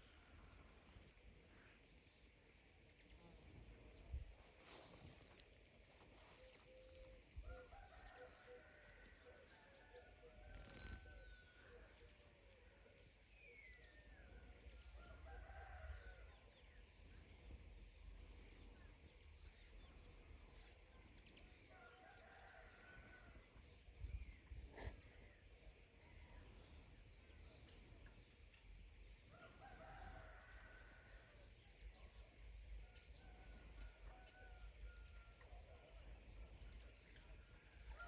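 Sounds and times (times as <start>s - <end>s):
distant rooster crowing: 14.9s - 16.4s
wind rumble on microphone: 23.8s - 24.7s.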